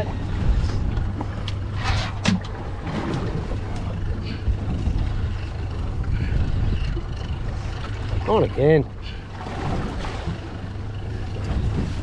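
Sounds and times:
wind noise: 0:00.0 - 0:08.3, 0:11.4 - 0:12.0
boat engine low rumble: 0:00.0 - 0:12.0.

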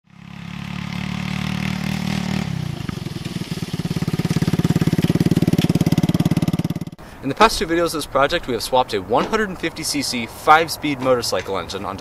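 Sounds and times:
go-kart engine running unevenly: 0:00.1 - 0:07.0.

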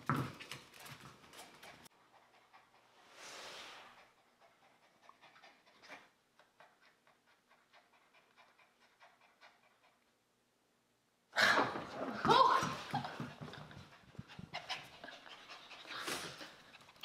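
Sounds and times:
small dog panting: 0:01.3 - 0:03.1, 0:03.7 - 0:10.1, 0:13.2 - 0:17.0.

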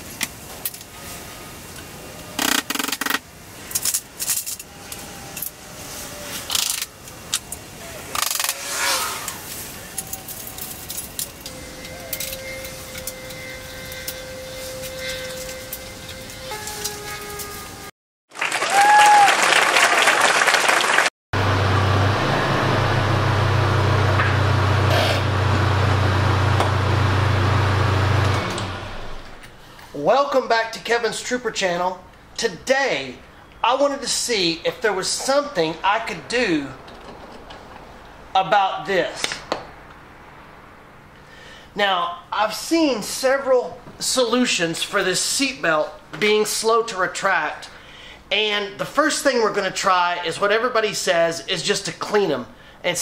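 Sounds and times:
harsh burst: 0:07.7 - 0:10.0
hand tools clinking: 0:09.4 - 0:17.6
crowd cheering and clapping: 0:18.3 - 0:21.1
steady low hum with hiss: 0:28.8 - 0:53.0.

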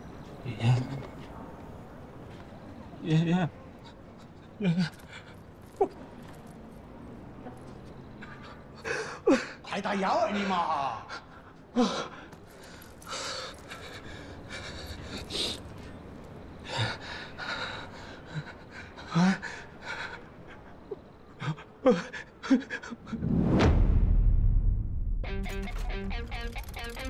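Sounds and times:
man sobbing cries: 0:04.6 - 0:06.0
deep rumbling swell: 0:23.1 - 0:25.4.

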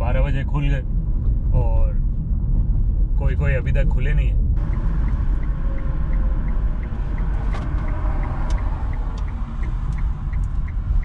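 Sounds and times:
car cabin road and engine rumble: 0:00.0 - 0:11.0
turn signal ticking: 0:04.5 - 0:11.0.

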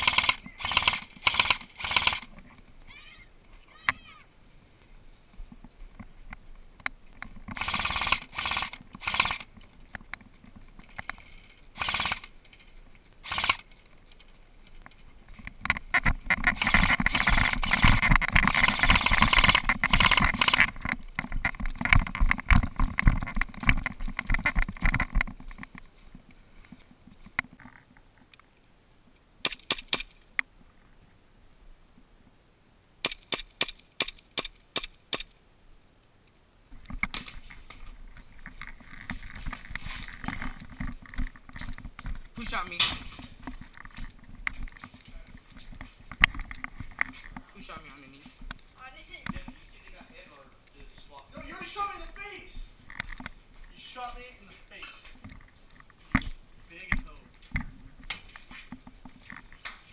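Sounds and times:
airsoft gunfire: 0:00.0 - 0:02.3, 0:07.6 - 0:09.4, 0:11.8 - 0:12.3, 0:13.2 - 0:13.6, 0:16.6 - 0:20.7.

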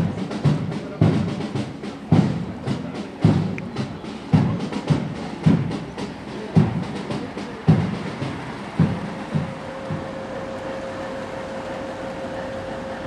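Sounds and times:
bass drum striking: 0:00.0 - 0:10.5
light drum taps: 0:02.1 - 0:10.1.

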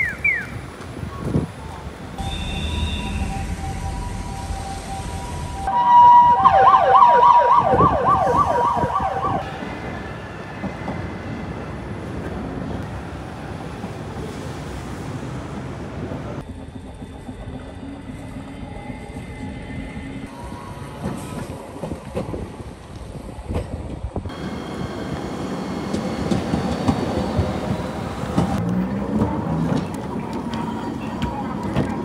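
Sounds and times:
traffic noise: 0:00.0 - 0:17.0, 0:20.1 - 0:32.0
wind noise: 0:00.1 - 0:14.4, 0:20.2 - 0:28.6
fast-warbling siren: 0:02.2 - 0:09.5
two-tone hi-lo siren: 0:02.2 - 0:09.7.

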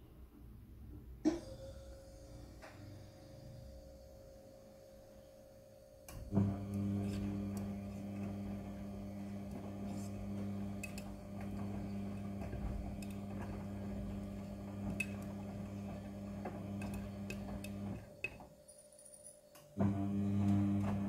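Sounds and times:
washing machine motor hum: 0:01.3 - 0:18.6, 0:19.8 - 0:21.0.

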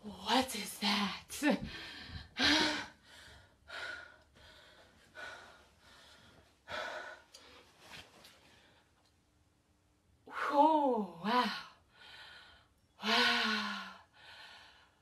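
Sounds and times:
woman breathing loudly: 0:01.6 - 0:07.7, 0:11.9 - 0:15.0.

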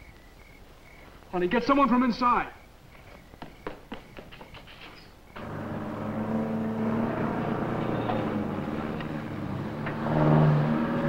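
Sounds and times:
vehicle engines humming: 0:05.2 - 0:11.0
deeper engine note: 0:05.4 - 0:11.0.

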